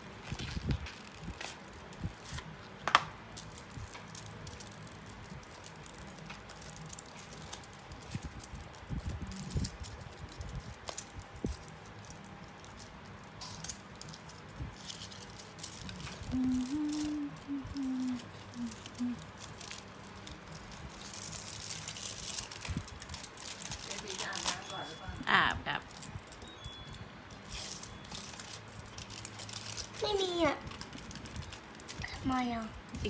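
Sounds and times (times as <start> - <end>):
wrapper rustling and crinkling: 0.0 - 33.0.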